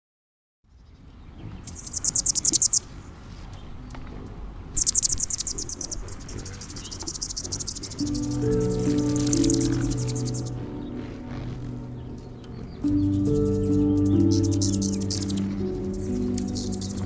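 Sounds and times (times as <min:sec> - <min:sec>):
low outdoor rumble: 0:03.0 - 0:13.9
high pulsed animal trill: 0:04.8 - 0:12.2, 0:13.0 - 0:17.0.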